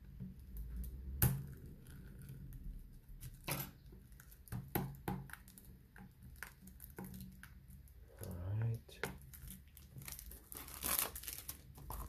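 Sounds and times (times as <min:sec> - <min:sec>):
fingers picking at shrink wrap: 0:08.6 - 0:12.0.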